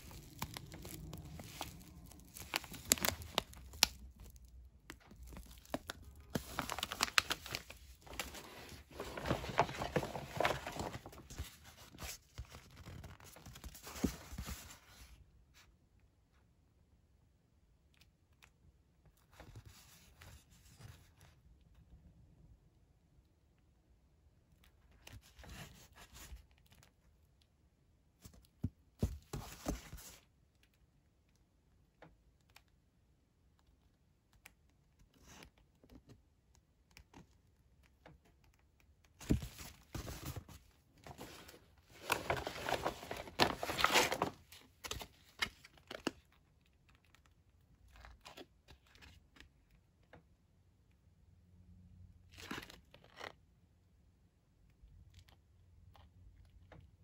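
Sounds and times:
packaging rustling and crinkling: 0.0 - 15.1, 39.2 - 46.3.

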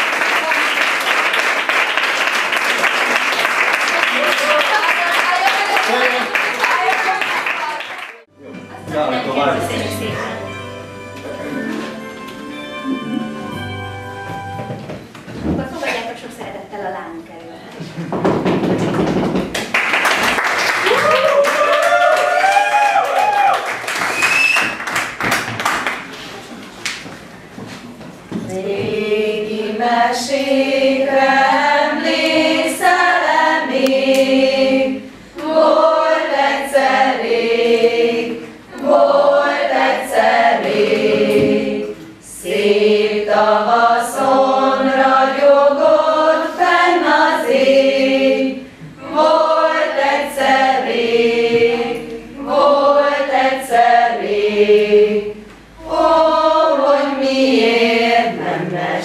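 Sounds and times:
group singing unaccompanied: 28.3 - 59.0.

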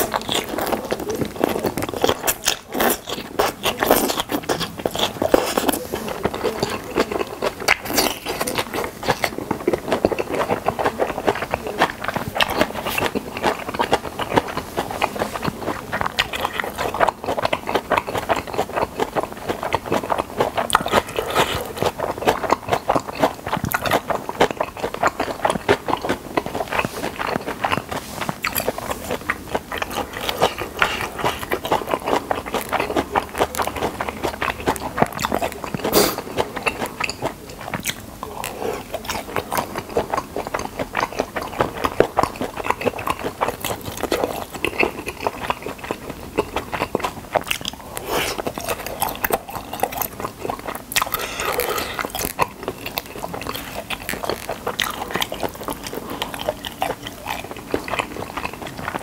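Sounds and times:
close chewing with wet crunches: 0.0 - 59.0.

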